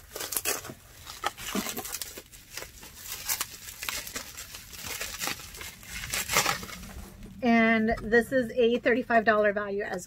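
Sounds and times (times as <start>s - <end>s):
packaging crinkling: 0.0s - 7.4s.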